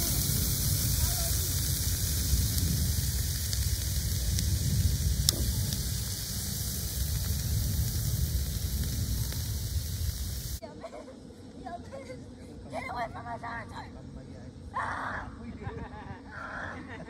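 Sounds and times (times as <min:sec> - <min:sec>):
meat sizzling on grill: 0:00.0 - 0:10.6
low steady rumble: 0:00.0 - 0:17.0.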